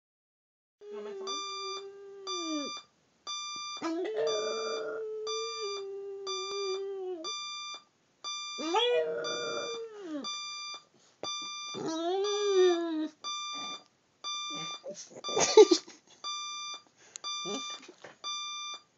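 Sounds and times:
alarm clock beeping: 1.2 - 18.9
dog howling: 3.8 - 7.3, 8.6 - 10.2.

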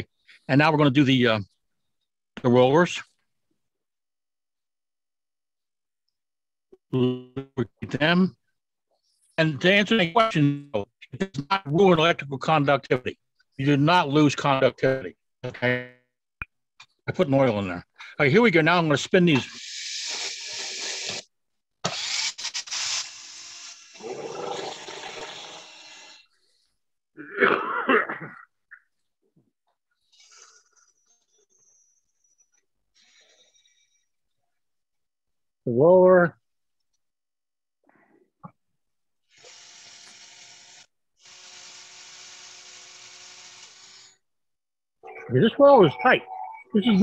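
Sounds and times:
rotary tool whirring: 19.5 - 24.1, 39.3 - 44.2.

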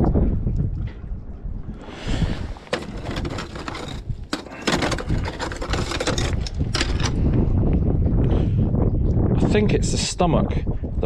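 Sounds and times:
wind rumble on microphone: 0.0 - 11.0
shells clattering in plastic bucket: 2.6 - 7.2.

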